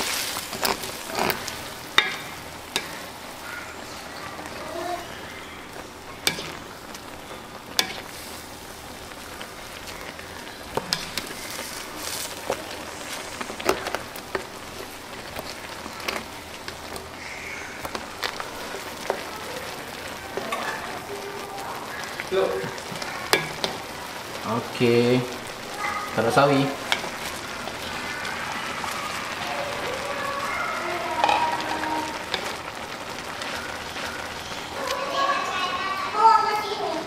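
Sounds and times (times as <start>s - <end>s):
spatula scraping a pan: 0.0s - 3.1s, 7.3s - 8.5s, 9.8s - 14.6s
noodles bubbling and sizzling: 0.0s - 37.0s.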